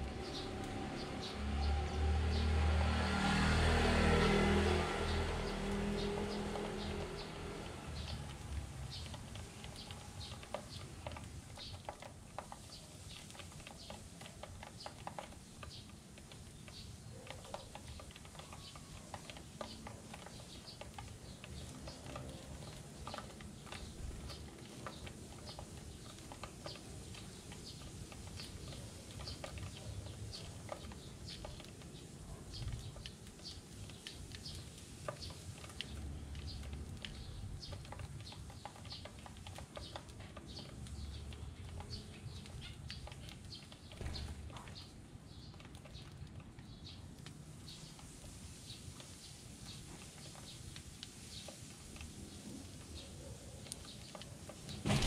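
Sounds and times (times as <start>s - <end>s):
beaks tapping on plastic: 5.1s - 47.0s.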